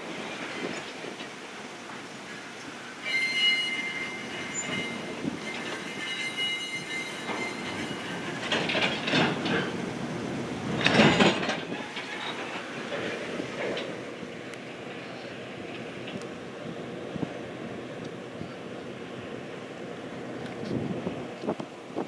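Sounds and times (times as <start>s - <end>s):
train wheels squealing: 3.0s - 9.8s, 10.8s - 12.7s
train wheels clattering: 3.0s - 14.6s.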